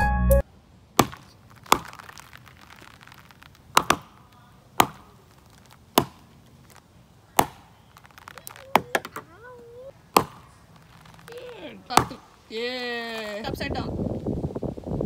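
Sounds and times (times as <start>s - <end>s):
canister rockets popping: 1.0s - 12.3s.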